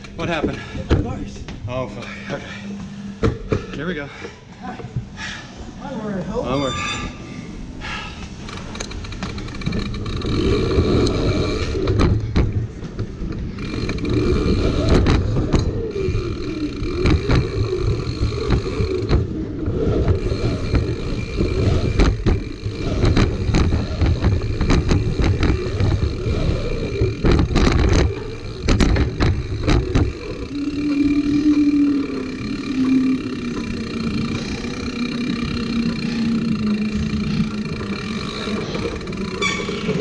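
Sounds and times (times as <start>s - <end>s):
bike tyres rumbling over ramps: 7.8s - 40.0s
bike knocks and rattles: 8.9s - 40.0s.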